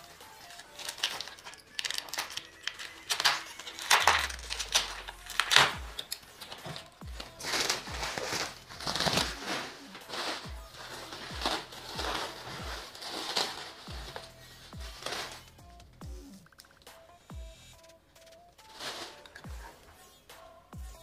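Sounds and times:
plastic wrapping crinkling: 0.0 - 15.6, 18.6 - 20.0
background music with drum hits: 3.8 - 21.0.

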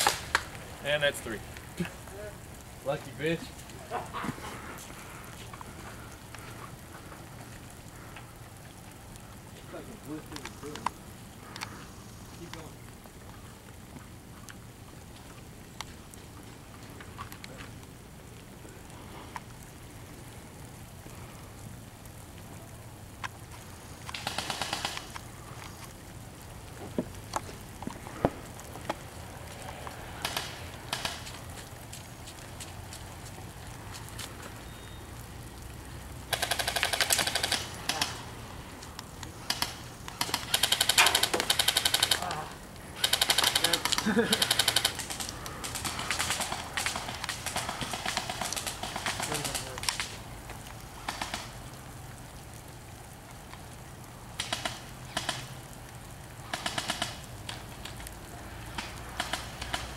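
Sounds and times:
steady hiss: 0.0 - 59.9
airsoft rifle firing: 24.2 - 25.1, 30.2 - 31.2, 36.3 - 38.2, 39.5 - 42.2, 43.0 - 45.2.

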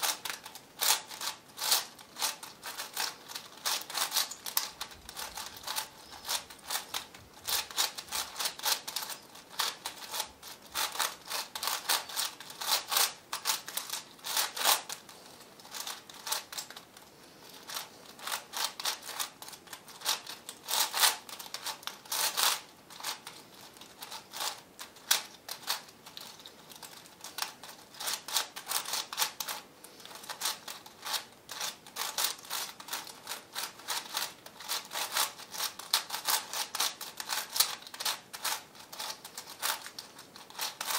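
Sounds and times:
puzzle cube clicking and clacking: 0.0 - 40.9.

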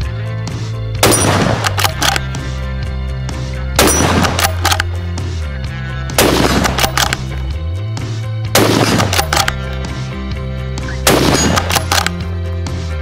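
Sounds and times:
background music with bass: 0.0 - 13.0
rifle shots: 1.0 - 2.4, 3.8 - 5.0, 6.2 - 7.3, 8.5 - 9.7, 11.0 - 12.2.

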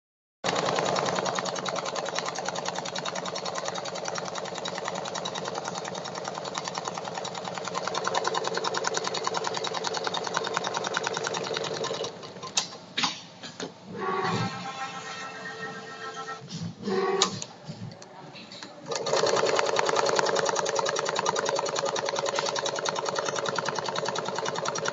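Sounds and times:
sewing machine stitching: 0.5 - 12.8, 18.8 - 24.9
sharp clicks and clunks: 11.8 - 13.7.

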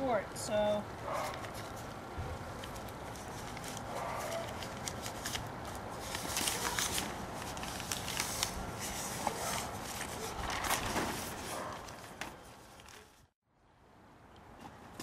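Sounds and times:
plastic sheeting crinkling: 1.2 - 13.2.

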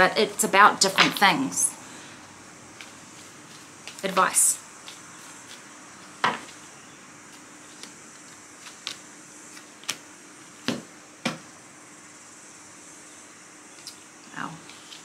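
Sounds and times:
cards clicking and tapping: 7.3 - 10.0.

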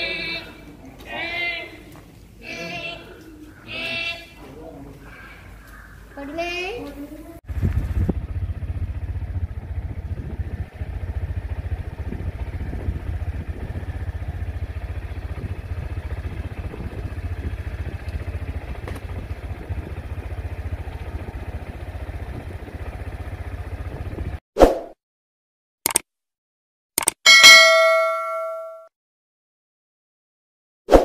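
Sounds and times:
wind buffeting microphone: 7.5 - 8.9, 9.5 - 14.2, 15.1 - 20.3, 23.7 - 24.4.

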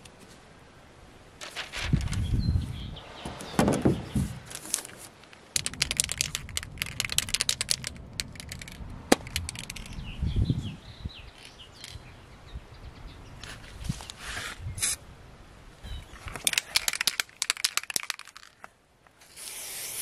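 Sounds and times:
newspaper crackling: 1.4 - 2.3, 4.3 - 8.8
spray can ball rattling: 4.6 - 10.0, 16.3 - 18.7.

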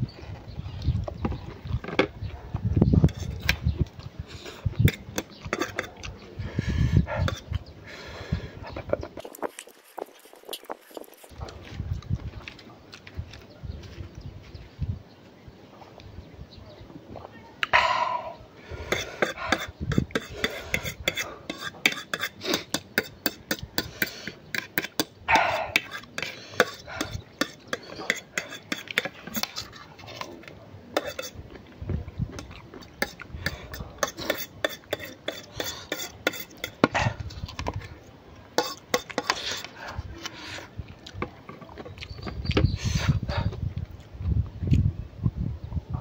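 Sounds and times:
mouth sounds of eating: 0.4 - 14.2, 17.1 - 44.9
fork scraping a plate: 3.1 - 3.5, 4.4 - 6.0, 7.2 - 7.6, 18.8 - 30.4, 31.0 - 31.4, 32.4 - 37.0, 38.6 - 40.7.

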